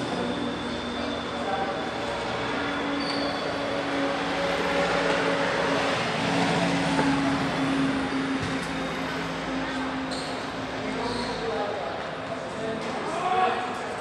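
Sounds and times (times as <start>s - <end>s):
vehicle engine passing by: 2.0s - 11.6s.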